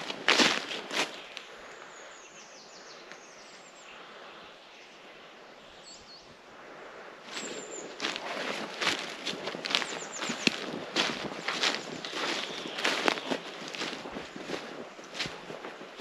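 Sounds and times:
footsteps on a path: 0:00.0 - 0:01.5, 0:07.3 - 0:16.0
outdoor background hiss: 0:00.0 - 0:16.0
small bird calling: 0:07.3 - 0:15.4.

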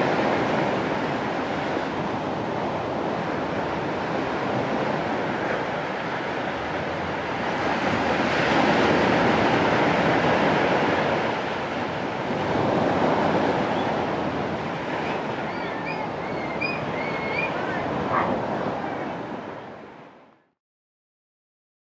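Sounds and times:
surf washing over rocky shore: 0:00.0 - 0:20.2.

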